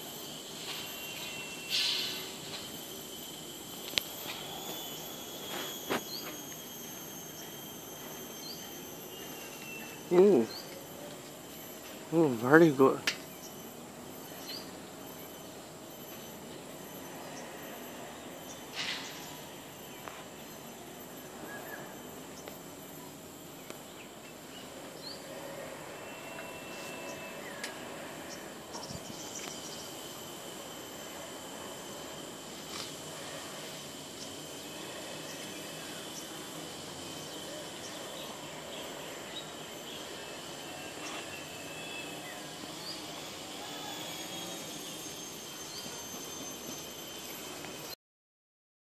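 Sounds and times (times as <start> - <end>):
background hiss and hum: 0.0 - 48.0
high-pitched insect drone: 0.0 - 48.0
bird chirp: 8.3 - 10.8, 14.3 - 15.4.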